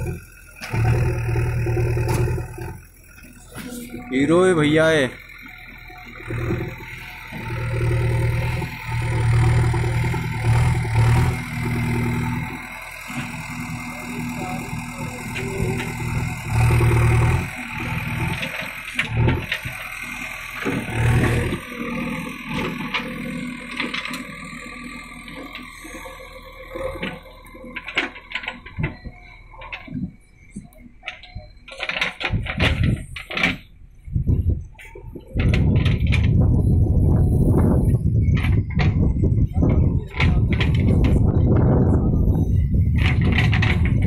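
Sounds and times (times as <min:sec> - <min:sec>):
diesel engine revving: 0:00.0 - 0:44.0.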